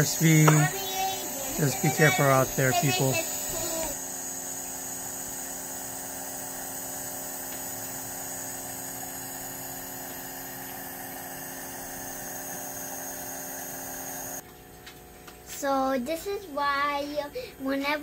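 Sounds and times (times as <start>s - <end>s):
nebulizer humming and hissing: 0.0s - 14.4s.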